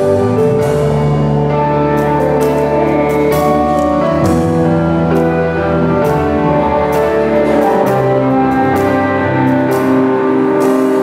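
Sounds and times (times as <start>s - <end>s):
live rock band playing: 0.0s - 11.0s
sustained keyboard notes: 0.0s - 11.0s.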